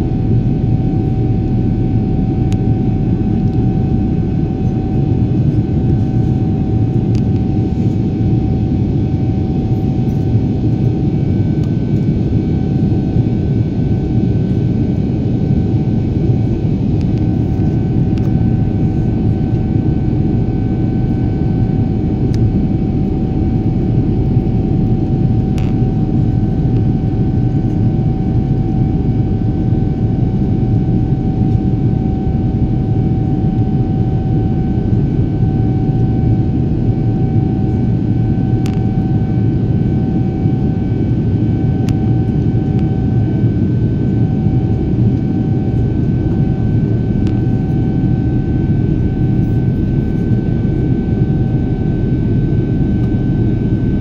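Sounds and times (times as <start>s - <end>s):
high whine: 0.0s - 54.0s
jet cabin engine rumble: 0.0s - 54.0s.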